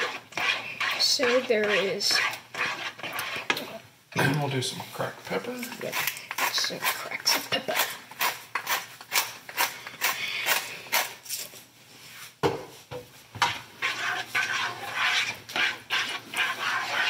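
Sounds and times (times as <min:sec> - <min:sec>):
spoon stirring thick sauce: 0:00.0 - 0:03.8, 0:13.4 - 0:17.0.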